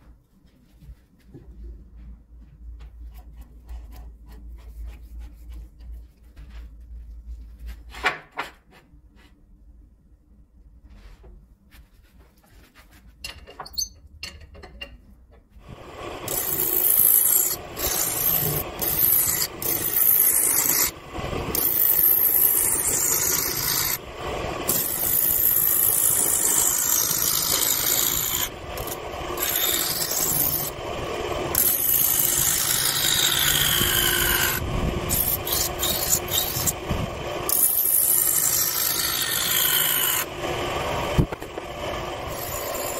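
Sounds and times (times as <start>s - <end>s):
lathe tool scraping wood: 15.7s - 42.9s.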